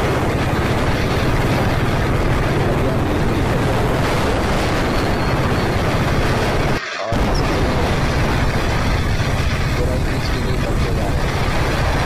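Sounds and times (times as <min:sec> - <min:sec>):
motorcycle engine cruising: 0:00.0 - 0:12.0
wind on microphone: 0:00.0 - 0:12.0.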